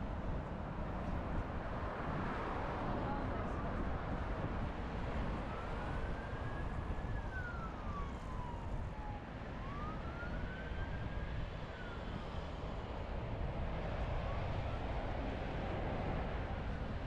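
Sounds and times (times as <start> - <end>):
city traffic rumble: 0.0 - 17.0
emergency siren wailing: 4.9 - 13.0, 13.9 - 17.0.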